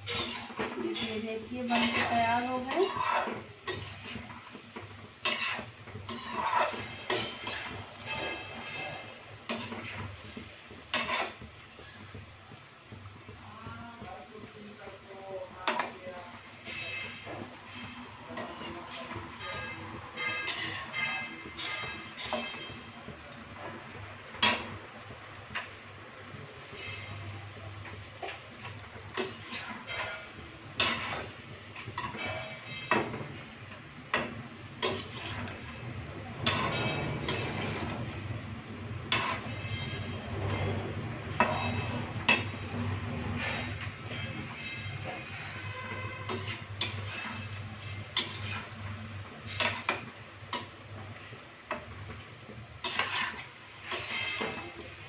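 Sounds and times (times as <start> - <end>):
steel spoon clinking on pan: 0.0 - 4.2, 5.2 - 10.0, 34.1 - 35.6, 36.4 - 37.9, 43.4 - 48.7, 49.4 - 50.8, 52.8 - 54.7
oil sizzling deep-frying: 0.0 - 55.0.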